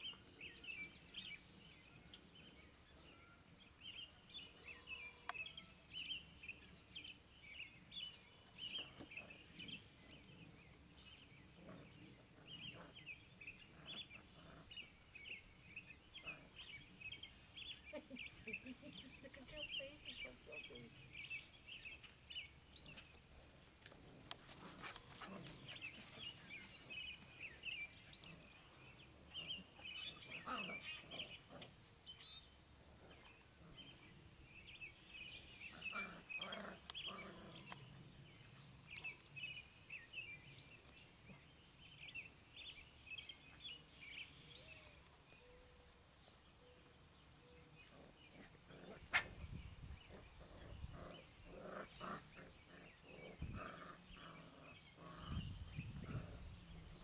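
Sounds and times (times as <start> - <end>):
birds chirping: 0.0 - 57.0
puppies growling and yipping: 48.0 - 57.0.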